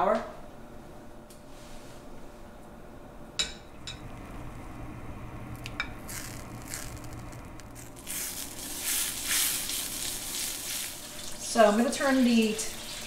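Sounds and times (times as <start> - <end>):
butter sizzling in a skillet: 5.9 - 13.0.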